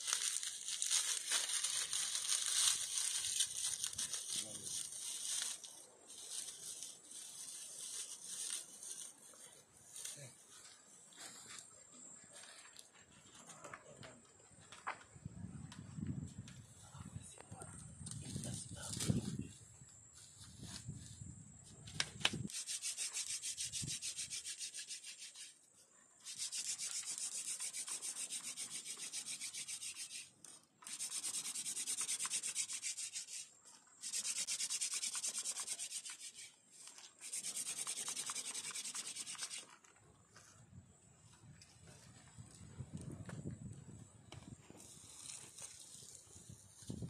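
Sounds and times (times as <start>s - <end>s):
wooden drill stick rasping: 22.5s - 25.6s, 26.2s - 39.8s.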